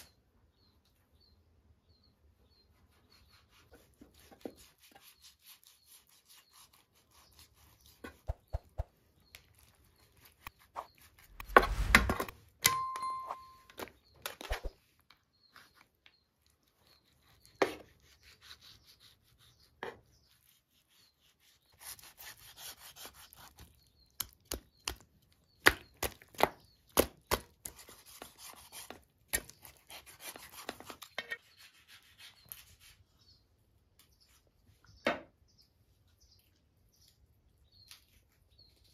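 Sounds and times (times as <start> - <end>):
knife slicing through meat: 17.0 - 23.7.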